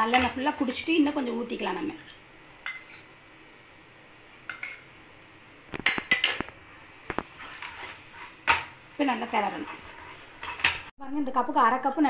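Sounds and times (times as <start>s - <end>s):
utensils clinking on metal pan: 2.6s - 3.1s, 4.5s - 4.9s, 5.8s - 6.5s, 7.4s - 10.9s.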